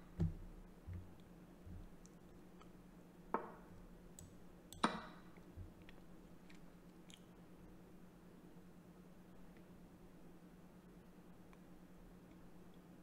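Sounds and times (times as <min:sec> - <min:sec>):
faint mouse clicks: 0:05.8 - 0:07.3.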